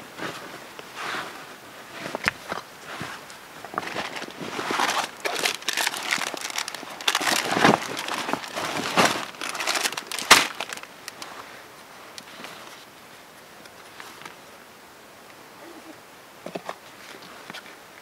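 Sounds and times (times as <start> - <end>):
fabric sack rustling: 2.9 - 11.4.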